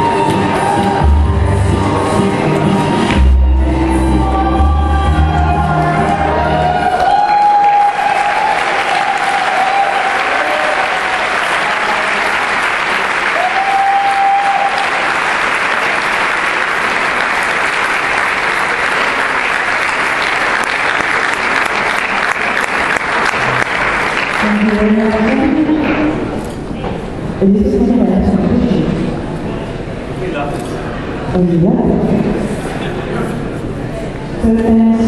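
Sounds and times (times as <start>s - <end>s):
dance music: 0.0s - 6.9s
audience applauding: 5.3s - 25.7s.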